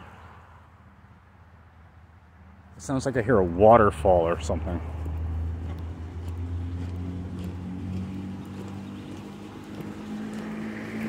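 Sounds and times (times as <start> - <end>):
distant engine drone: 2.5 - 11.0
footsteps on gravel: 4.0 - 11.0.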